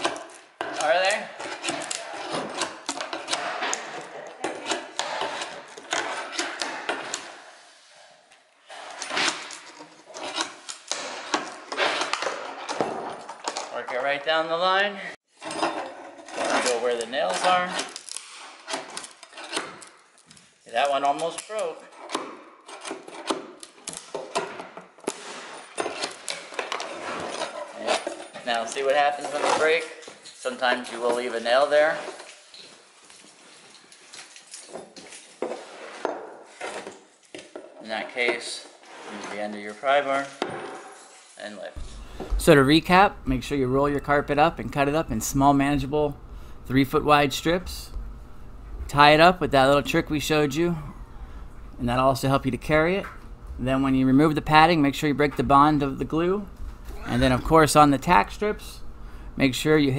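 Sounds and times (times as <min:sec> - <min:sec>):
strip scraping and cracking: 0:08.8 - 0:12.8.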